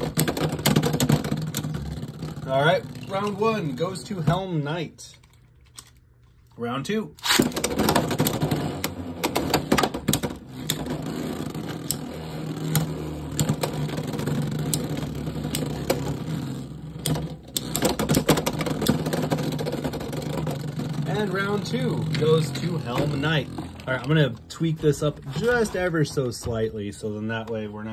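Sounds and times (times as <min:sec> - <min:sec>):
spinning tops whirring: 0:07.2 - 0:26.1.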